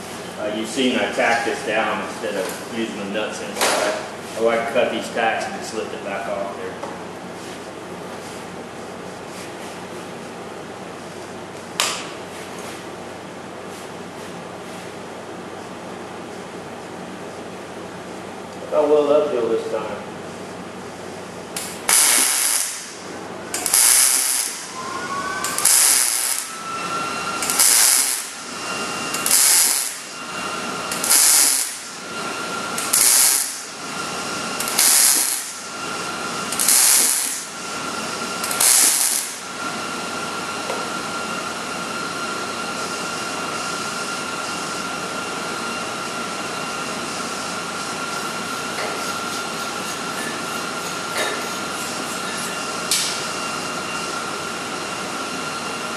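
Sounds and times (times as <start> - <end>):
welder arc crackling: 21.6 - 24.8, 25.4 - 26.6, 27.4 - 28.4, 29.1 - 30.1, 30.9 - 31.9, 32.8 - 33.7, 34.6 - 35.6, 36.5 - 37.5, 38.4 - 39.4
faint high whine: 23.5 - 55.9.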